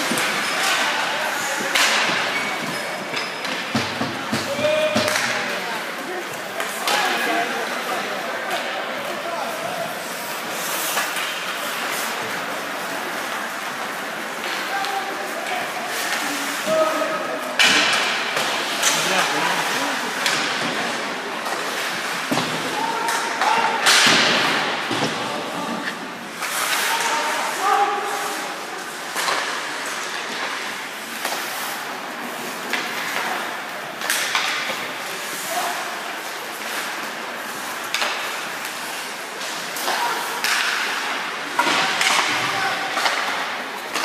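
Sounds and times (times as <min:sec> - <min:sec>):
hockey sticks and puck knocking: 0:00.0 - 0:05.6, 0:37.8 - 0:44.0
puck and sticks hitting boards: 0:00.0 - 0:35.8, 0:36.5 - 0:44.0
murmur of voices: 0:00.0 - 0:44.0.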